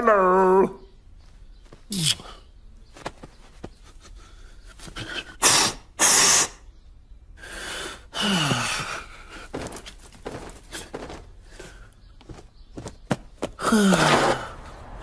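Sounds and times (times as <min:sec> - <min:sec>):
cartoon hissing bursts: 0:05.5 - 0:06.6.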